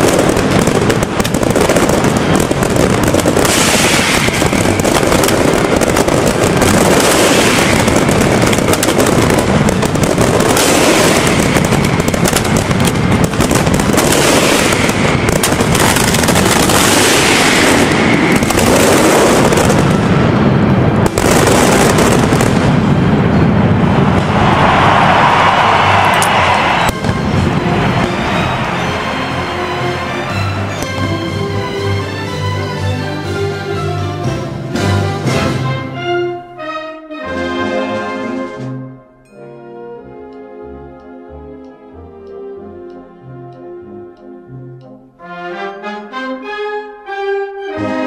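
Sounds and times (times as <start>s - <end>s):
firecracker barrage: 0.0s - 32.2s.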